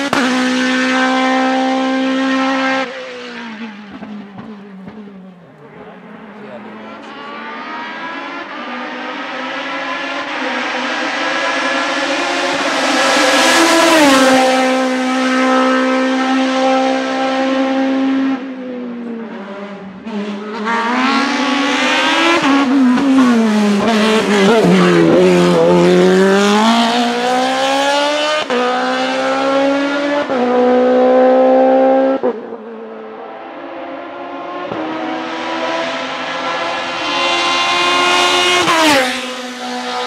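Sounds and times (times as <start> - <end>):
motorcycle engine at high revs: 20.0 - 32.4, 34.2 - 40.0.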